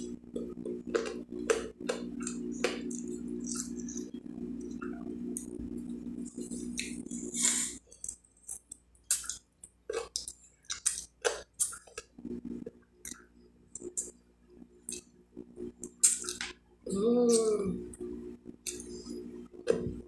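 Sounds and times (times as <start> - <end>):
lip smacks while chewing: 7.9 - 12.1.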